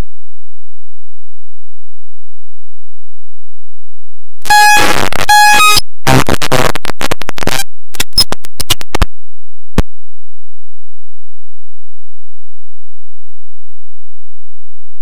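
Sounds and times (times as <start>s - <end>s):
bursts of harsh noise: 4.4s - 9.0s
steady tones: 4.4s - 9.1s
sharp clicks: 4.7s - 9.1s.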